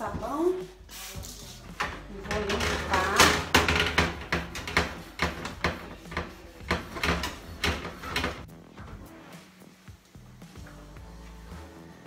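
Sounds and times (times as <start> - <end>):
sponge scrubbing wire oven rack: 0.9 - 8.5.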